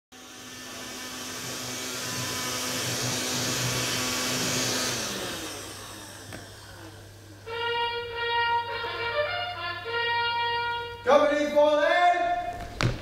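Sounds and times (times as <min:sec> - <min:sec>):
handheld vacuum cleaner running: 0:00.1 - 0:08.3.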